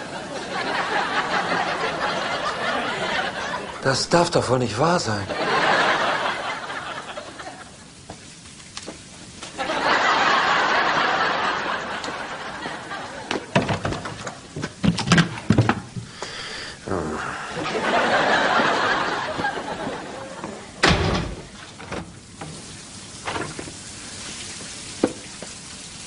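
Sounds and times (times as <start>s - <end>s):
audience laughing: 0.0s - 4.1s, 5.2s - 8.0s, 9.5s - 13.6s, 16.9s - 20.8s
sharp knocks and thumps: 13.3s - 16.1s.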